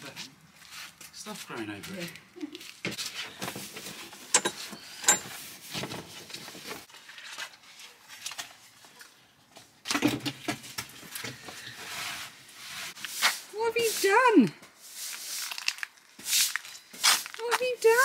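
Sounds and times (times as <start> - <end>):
plastic cover rustling: 15.1 - 18.0.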